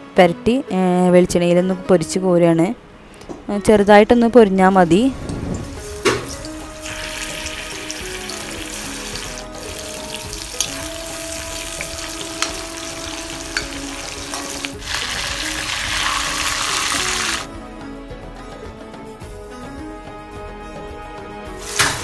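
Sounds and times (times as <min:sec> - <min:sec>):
chicken sizzling in oil: 0:05.7 - 0:17.5, 0:21.6 - 0:22.0.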